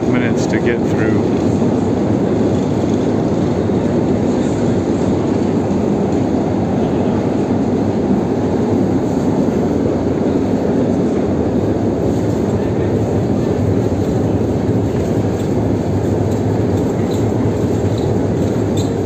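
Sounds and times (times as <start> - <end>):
escalator mechanical rumble: 0.0 - 19.0.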